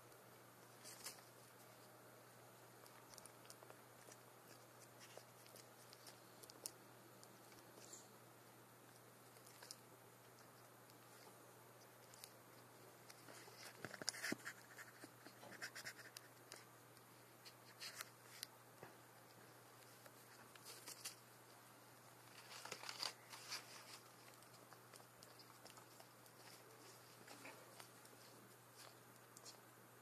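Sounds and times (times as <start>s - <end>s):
iguana chewing leafy greens: 2.8s - 8.0s, 22.2s - 29.6s.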